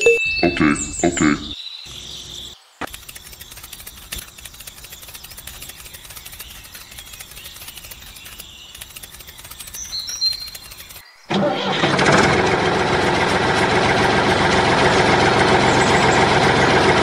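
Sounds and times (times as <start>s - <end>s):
rapid faint ticking: 2.8s - 11.0s.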